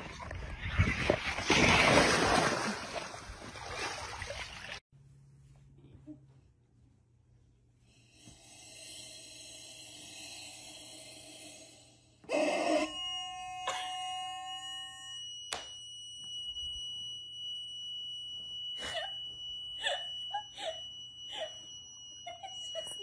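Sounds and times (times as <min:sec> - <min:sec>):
high ringing tone: 0:12.3 - 0:23.0
woman laughing: 0:18.8 - 0:21.6, 0:22.2 - 0:23.0.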